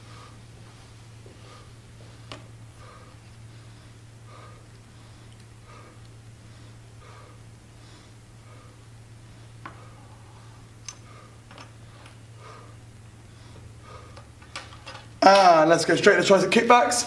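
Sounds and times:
man breathing hard: 0.0s - 15.1s
steady low hum: 0.0s - 17.0s.

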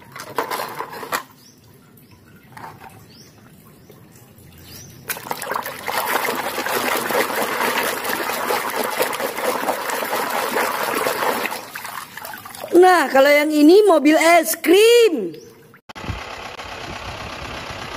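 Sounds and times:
hand splashing in water basin: 5.0s - 12.8s.

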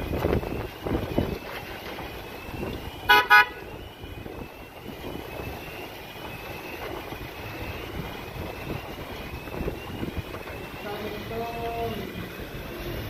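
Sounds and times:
wind blowing: 0.0s - 13.0s
car horn beeping: 3.1s - 3.7s.

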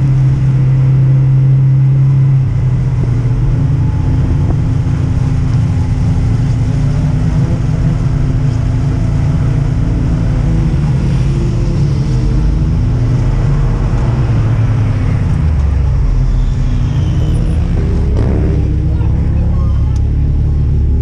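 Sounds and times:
off-road vehicle engine droning: 0.0s - 21.0s.

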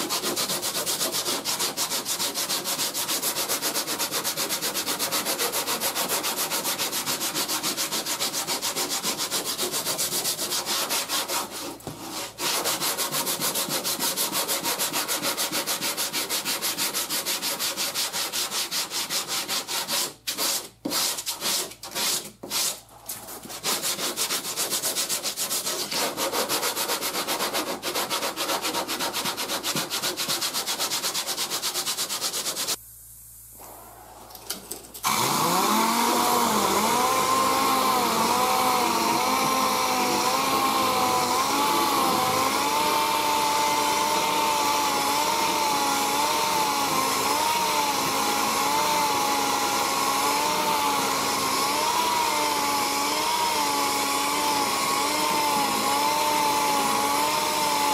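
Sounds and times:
hand sanding rasping strokes: 0.0s - 32.8s, 35.1s - 57.9s
pneumatic orbital sander whining: 35.0s - 57.9s.

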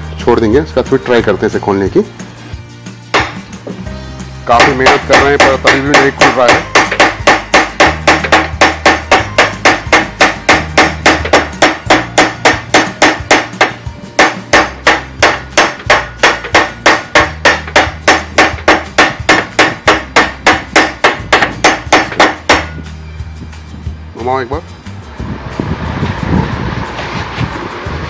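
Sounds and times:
rapid hammer blows on wood: 4.4s - 22.8s.

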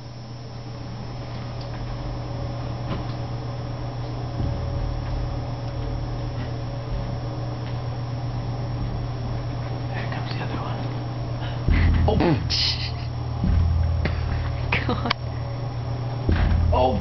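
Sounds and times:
steady low hum: 0.0s - 17.0s
thump against closet door: 16.3s - 16.7s.

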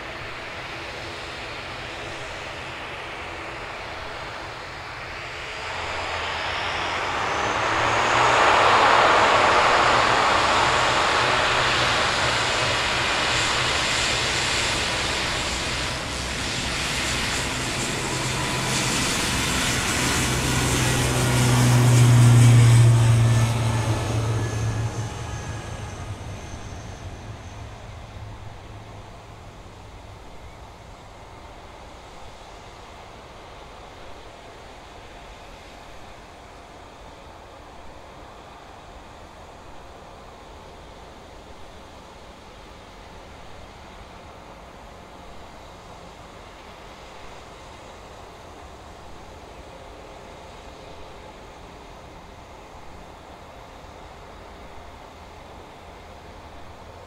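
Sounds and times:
jet engines passing: 0.5s - 33.1s.

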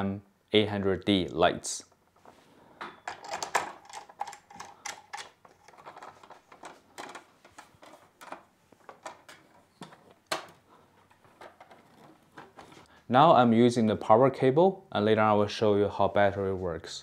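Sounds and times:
light stand being handled: 2.1s - 12.9s.

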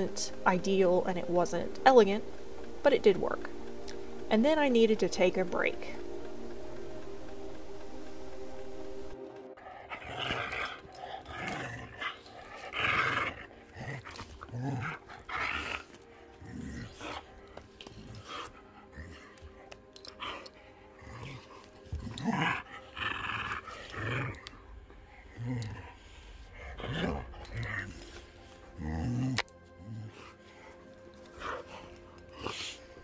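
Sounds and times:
background music: 0.0s - 33.0s
dog growling in play: 9.6s - 33.0s.

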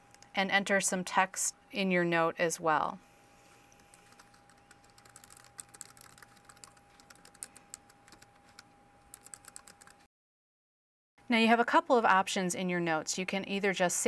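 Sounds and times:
faint steady hum: 0.0s - 10.1s, 11.2s - 14.0s
typing on keyboard: 3.9s - 10.0s.

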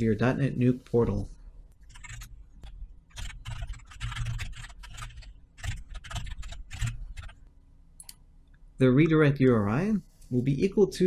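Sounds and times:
computer keyboard typing: 1.8s - 8.2s.

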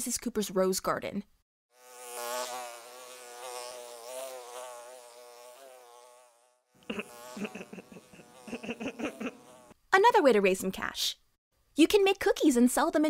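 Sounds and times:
flying insect buzzing: 1.7s - 9.8s.

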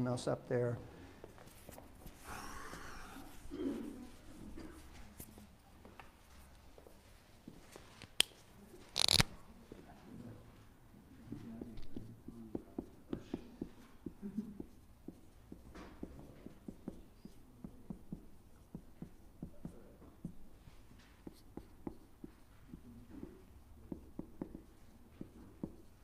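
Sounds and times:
marker squeaking on whiteboard: 8.9s - 9.3s, 11.6s - 20.4s, 21.0s - 26.0s.

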